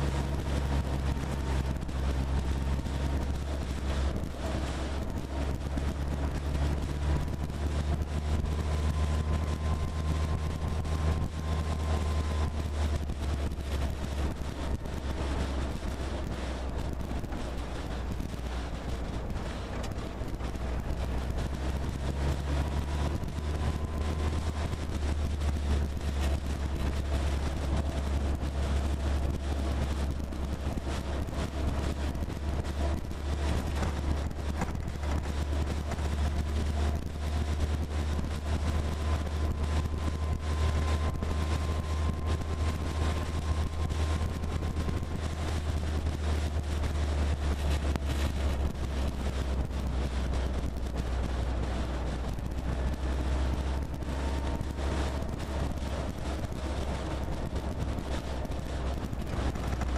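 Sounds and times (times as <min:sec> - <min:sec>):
jeep engine and road rumble: 0:00.0 - 0:59.9
wind buffeting: 0:00.0 - 0:59.9
faint high whine: 0:36.3 - 0:48.3.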